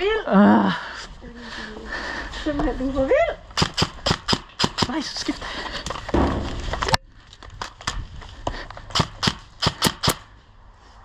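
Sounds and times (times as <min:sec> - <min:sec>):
sharp clicks: 0:03.6 - 0:05.0, 0:08.6 - 0:10.3.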